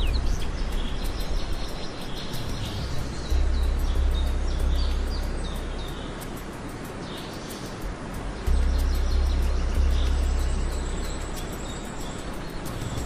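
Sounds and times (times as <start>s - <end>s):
deep low rumble: 0.0s - 1.6s, 2.8s - 6.3s, 8.5s - 11.8s
birds chirping: 0.0s - 13.0s
outdoor ambience hiss: 0.0s - 13.0s.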